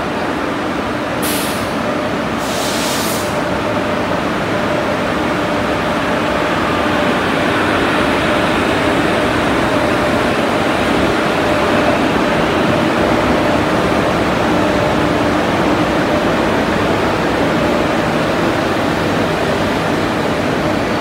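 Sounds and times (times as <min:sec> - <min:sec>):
electric locomotive hum: 0:00.0 - 0:21.0
short hisses: 0:02.4 - 0:03.4.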